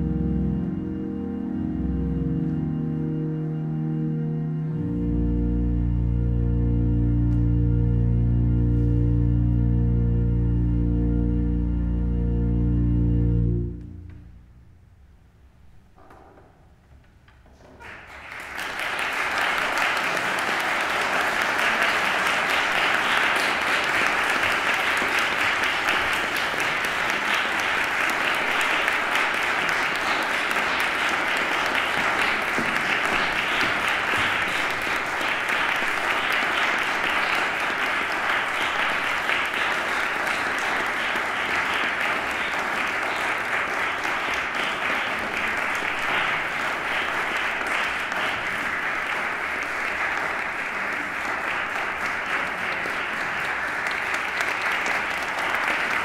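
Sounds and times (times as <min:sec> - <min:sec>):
audience applauding: 0:17.5 - 0:56.0.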